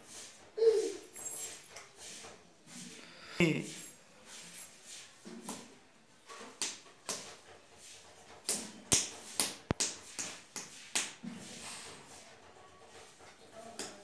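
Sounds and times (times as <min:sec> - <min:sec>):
baby's hands slapping stone floor: 0:05.4 - 0:05.8, 0:06.4 - 0:07.5, 0:08.3 - 0:11.3, 0:13.7 - 0:14.0.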